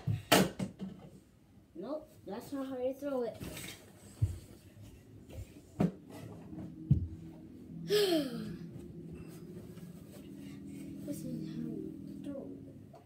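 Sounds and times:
faint steady hum: 0.0s - 13.0s
child's breathy cry: 7.9s - 8.6s.

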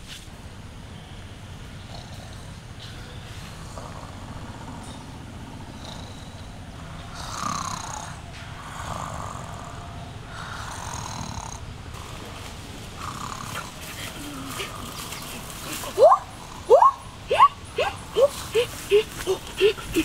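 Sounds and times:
person snoring: 5.6s - 12.3s.

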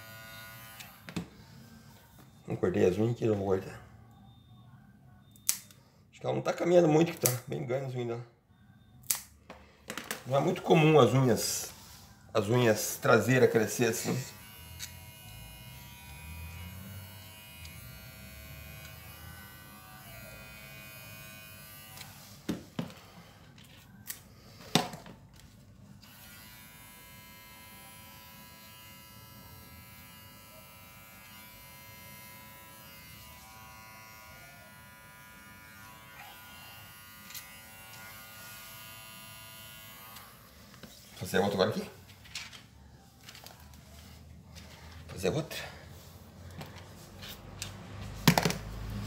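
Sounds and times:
electric trimmer humming: 0.0s - 1.1s, 13.3s - 22.2s, 26.0s - 40.6s.

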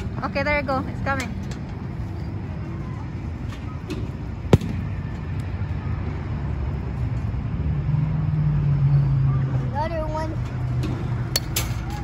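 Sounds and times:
steady background hum: 0.0s - 7.7s
metal bat hitting ball: 4.5s - 5.0s.

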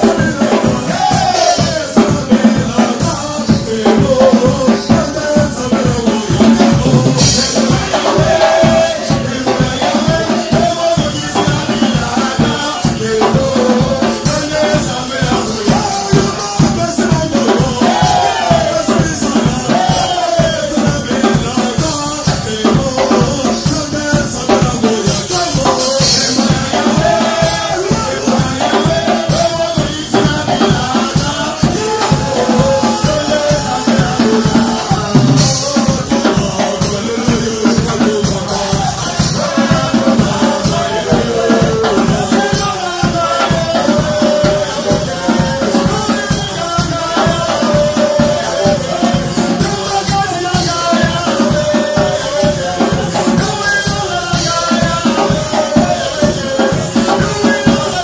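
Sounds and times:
drums: 0.0s - 58.0s
men singing into microphones: 0.0s - 58.0s
shaken percussion: 0.0s - 58.0s.

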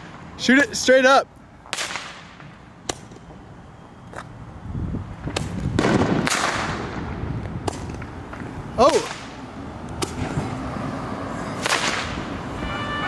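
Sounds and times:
firework sharp pops: 1.6s - 3.3s, 5.2s - 10.5s, 11.6s - 12.2s.

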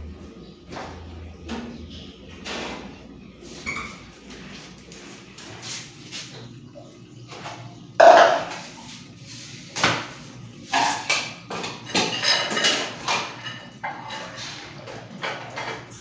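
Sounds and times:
objects knocking and clattering: 7.4s - 8.6s, 10.7s - 16.0s.

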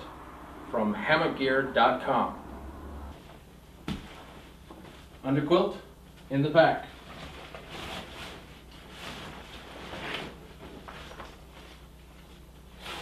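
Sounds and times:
low hum: 0.0s - 12.8s
nylon fabric rustling: 6.9s - 13.0s.

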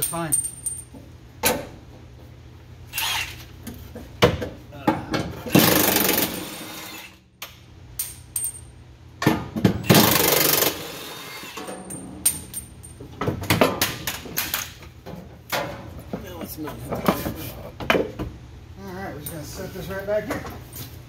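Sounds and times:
metal clinks of tools: 0.0s - 1.0s
impact wrench hammering: 5.1s - 7.1s, 8.0s - 12.7s.

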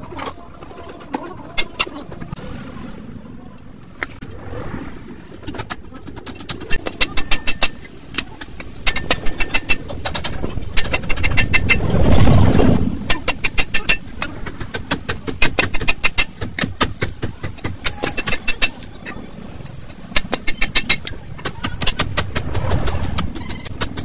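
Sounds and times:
hammer blows on steel rivets: 17.5s - 18.8s.

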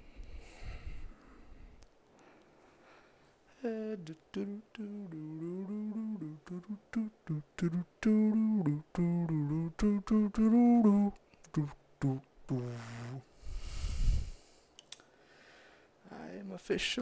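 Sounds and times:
man humming: 3.6s - 13.3s.

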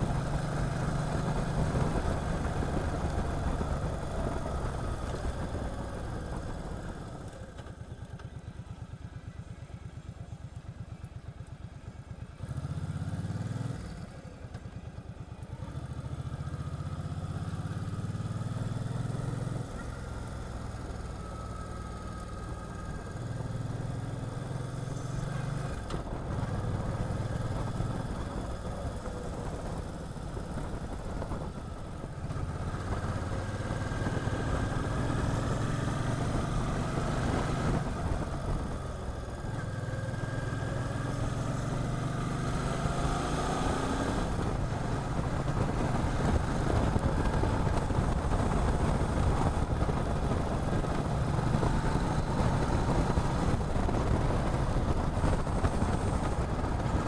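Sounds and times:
motorcycle engine running: 0.0s - 57.0s
wind rush: 43.1s - 57.0s.

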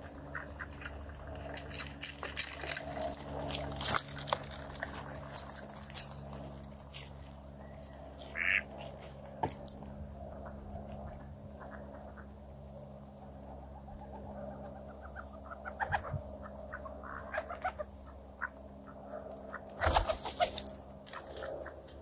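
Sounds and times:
ducks quacking softly: 8.2s - 8.9s, 10.4s - 12.4s, 13.6s - 19.8s.

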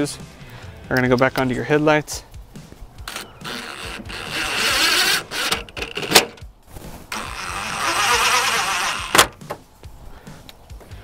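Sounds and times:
cordless power driver running screws: 3.0s - 6.4s, 7.1s - 9.3s.

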